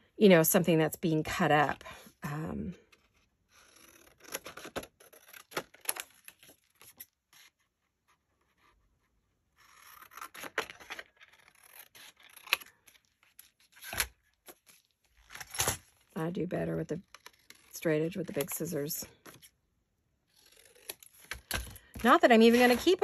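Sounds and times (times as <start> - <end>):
scissors snipping paper: 9.6 - 14.1
paper rustling: 20.3 - 23.0.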